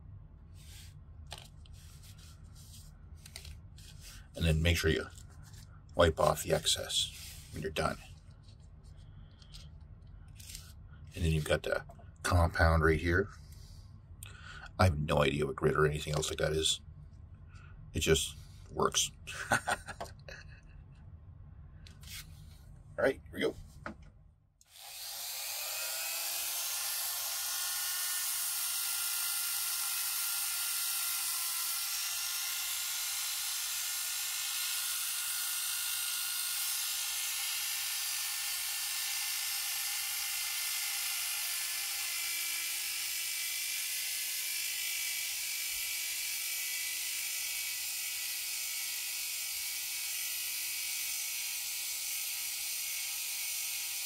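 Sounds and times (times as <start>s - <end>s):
rotary tool high whine: 0.5s - 1.0s, 1.7s - 9.7s, 24.6s - 54.0s.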